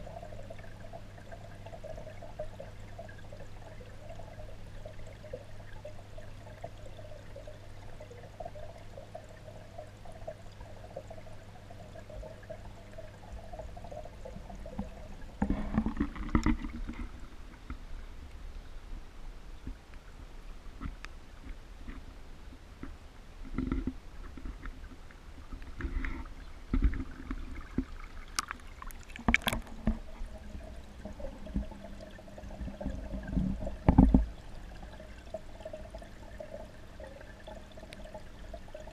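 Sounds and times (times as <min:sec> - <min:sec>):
steady low underwater hum: 0:00.0 - 0:38.9
water sloshing: 0:23.6 - 0:38.5.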